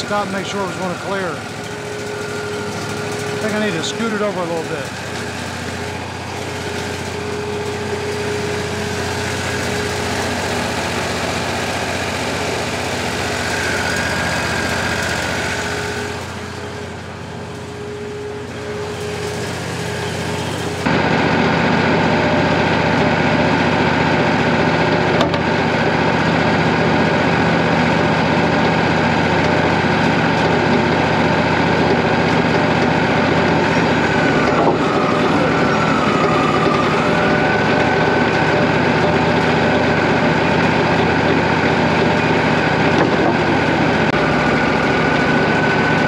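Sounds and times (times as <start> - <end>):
saw blade cutting log: 0.0 - 20.9
band sawmill running: 0.0 - 46.0.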